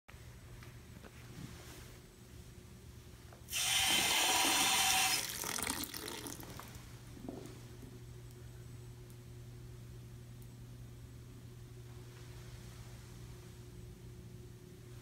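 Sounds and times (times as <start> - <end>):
faucet water splashing into sink: 3.5 - 6.8.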